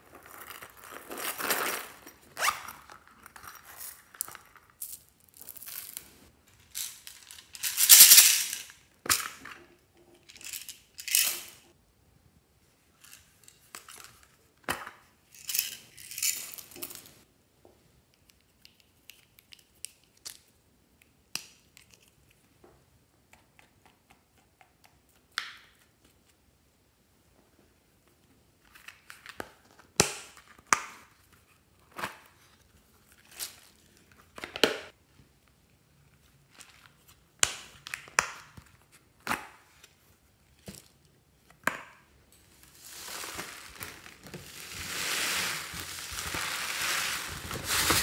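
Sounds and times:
plastic beads rattling into dish: 6.6 - 8.7, 42.6 - 48.0.

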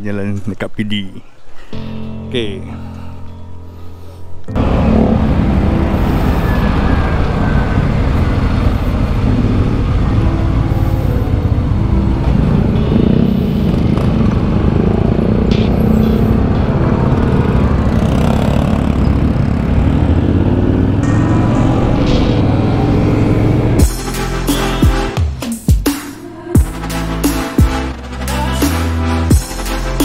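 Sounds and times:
motorcycle engine rumble: 4.5 - 24.0.

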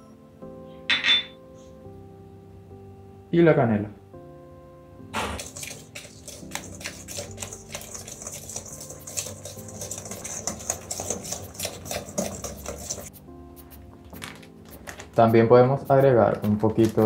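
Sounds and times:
whisk clicking and scraping bowl: 5.2 - 13.2.

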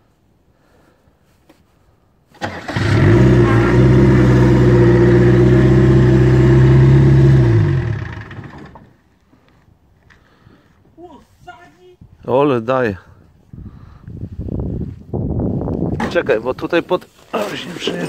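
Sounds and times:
car engine starting and running: 2.4 - 8.9
engine winding down: 2.4 - 8.9.

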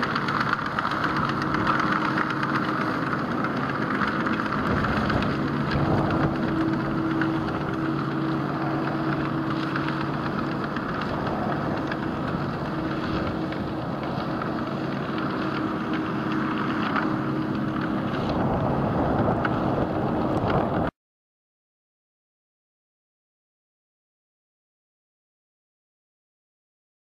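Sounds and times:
muck spreader beaters rattling: 0.0 - 20.9
tractor engine drone: 0.0 - 20.9.

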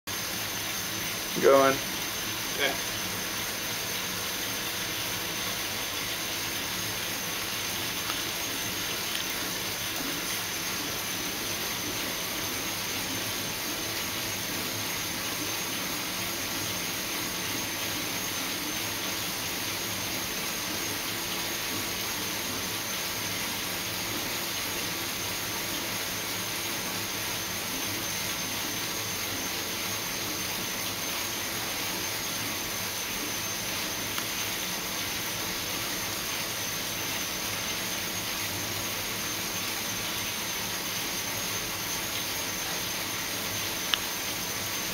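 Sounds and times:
bicycle tyre spinning on trainer: 0.1 - 44.9.

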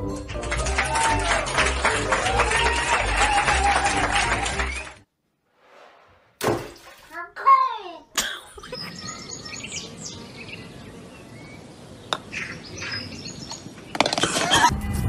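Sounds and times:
small birds chirping: 8.5 - 14.5.

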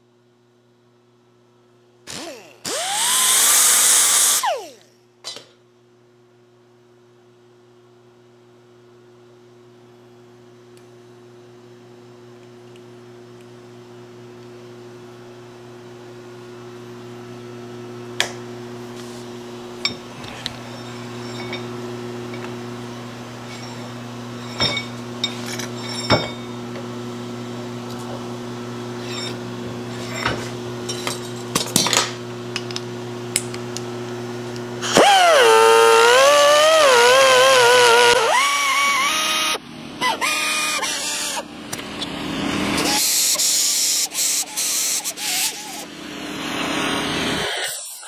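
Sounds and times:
steady electrical hum: 4.2 - 42.8
metal tools clinking: 20.6 - 21.7, 23.5 - 26.5.

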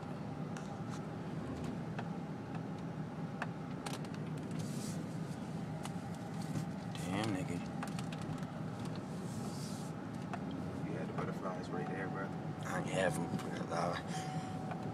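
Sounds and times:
road and engine rumble: 0.0 - 14.9
phone clicks and rustles: 3.7 - 4.7, 5.8 - 9.0.

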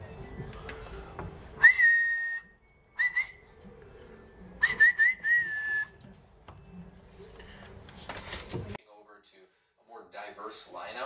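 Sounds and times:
person whistling: 1.5 - 3.6, 4.6 - 6.0.

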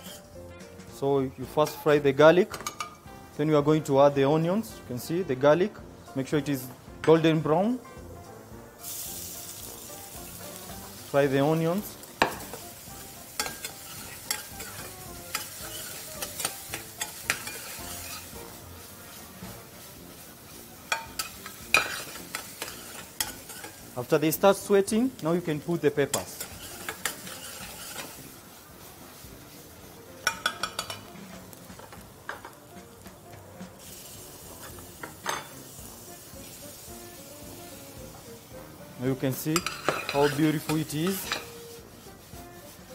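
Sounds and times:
onions sizzling in pan: 0.0 - 5.2, 5.9 - 42.9
metal spoon clinking against pan: 2.5 - 3.0, 13.4 - 18.3, 20.9 - 23.8, 26.1 - 28.2, 30.2 - 31.1, 35.0 - 35.6, 39.5 - 41.6.

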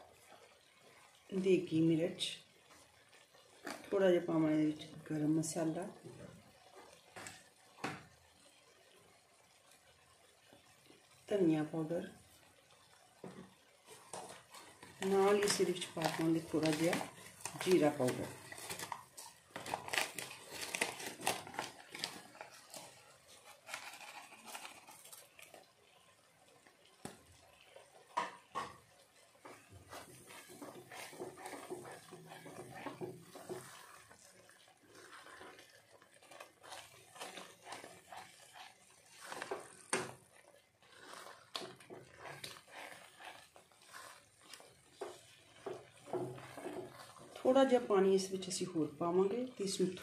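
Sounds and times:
spatula scraping a pot: 13.3 - 25.7, 27.1 - 50.0.

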